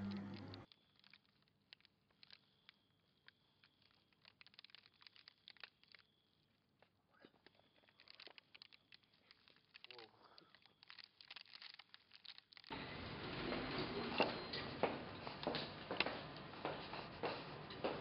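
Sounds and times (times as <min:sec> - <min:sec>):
faint crackles and ticks: 0:00.0 - 0:12.7.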